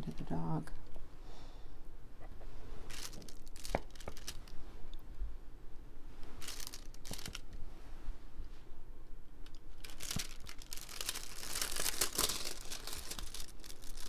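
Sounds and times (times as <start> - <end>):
plastic film crinkling: 2.9 - 4.6, 6.4 - 7.5, 9.4 - 14.0.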